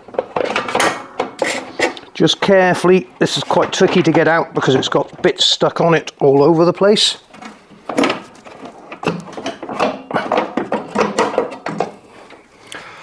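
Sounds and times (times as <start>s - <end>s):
plastic knocking and scraping on metal: 0.0s - 2.0s, 7.4s - 12.0s.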